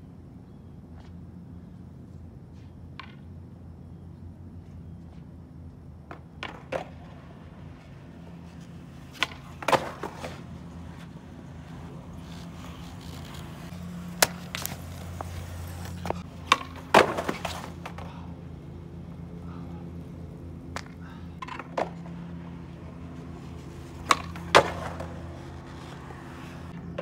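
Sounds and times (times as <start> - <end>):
skateboard wheels rolling: 4.1 - 27.0
skateboard clacks: 6.0 - 18.2, 20.7 - 27.0.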